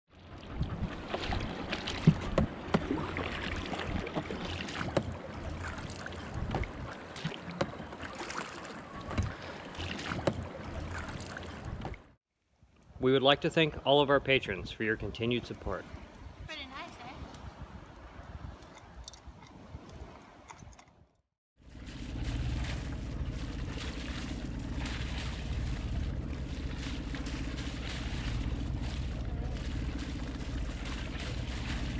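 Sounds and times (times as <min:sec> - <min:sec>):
paddle splashing in water: 0:00.1 - 0:12.2, 0:21.7 - 0:31.9
wind rumbling on microphone: 0:00.3 - 0:07.9, 0:09.0 - 0:31.9.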